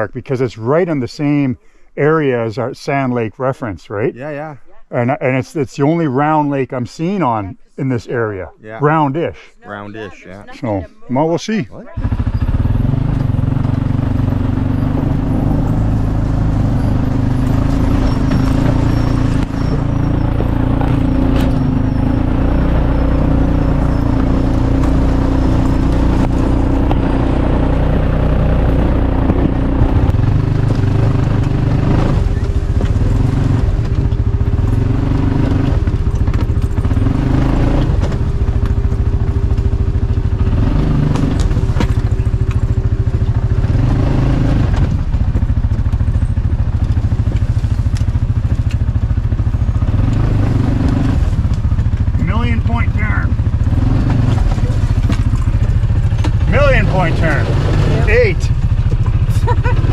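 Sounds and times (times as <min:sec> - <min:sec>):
off-road vehicle engine revving: 0:11.8 - 0:59.9.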